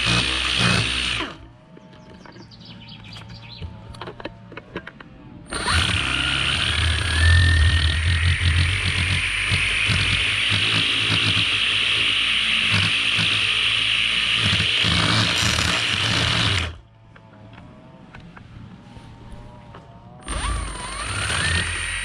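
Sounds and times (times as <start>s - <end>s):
string trimmer cutting grass: 0.0s - 1.4s, 5.5s - 16.8s, 20.2s - 22.0s.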